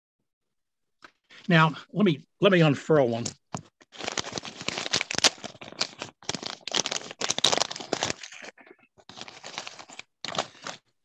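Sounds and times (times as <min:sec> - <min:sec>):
plastic bag crinkling: 0:03.8 - 0:10.9.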